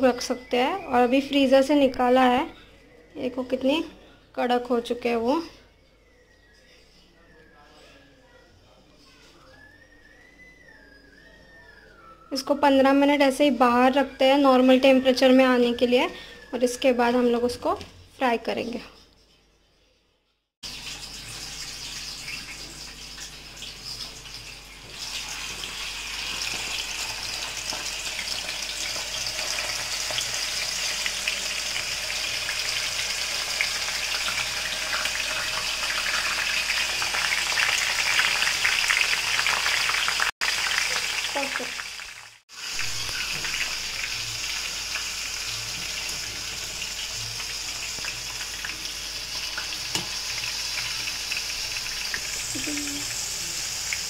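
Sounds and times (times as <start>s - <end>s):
fries sizzling in hot oil: 20.6s - 54.0s.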